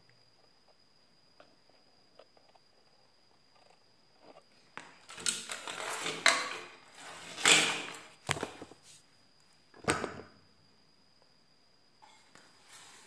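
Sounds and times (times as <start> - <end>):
faint high whine: 0.0 - 13.0
circuit board scraping and clattering: 5.1 - 8.7.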